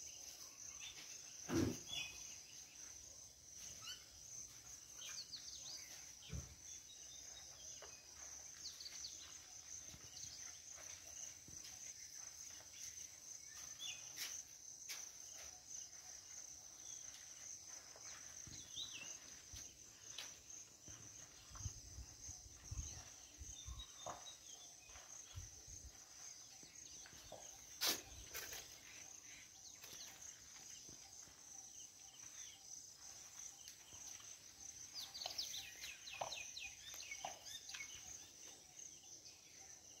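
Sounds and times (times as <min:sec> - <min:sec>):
bird chirps: 0:00.0 - 0:03.0, 0:03.6 - 0:14.3, 0:22.5 - 0:40.0
insects droning: 0:00.0 - 0:40.0.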